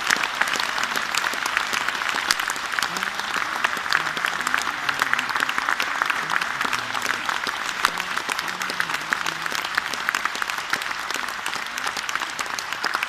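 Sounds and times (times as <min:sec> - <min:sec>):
audience clapping: 0:00.0 - 0:13.0
faint voices: 0:02.7 - 0:12.7.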